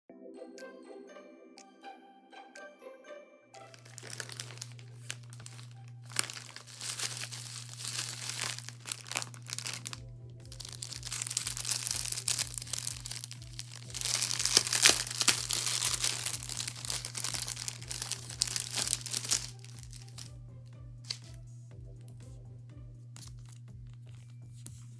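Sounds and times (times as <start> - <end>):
plastic bags crinkling: 3.6 - 20.3.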